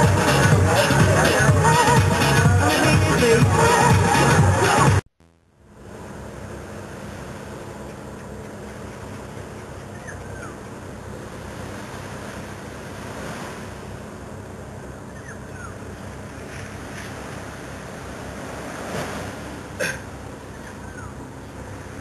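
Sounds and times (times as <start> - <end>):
small waves washing on sand: 11.2 - 14.0, 16.3 - 19.8.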